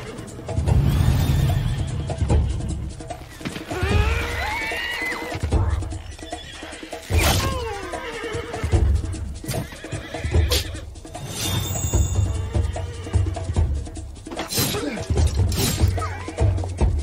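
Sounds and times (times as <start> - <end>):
dramatic soundtrack music: 0.0 - 17.0
horses whinnying: 1.4 - 10.9, 11.9 - 13.7.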